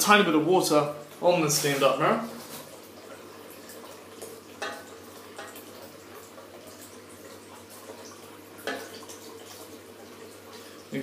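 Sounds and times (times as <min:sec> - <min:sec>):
tap running into sink: 0:03.8 - 0:06.9, 0:07.9 - 0:09.7.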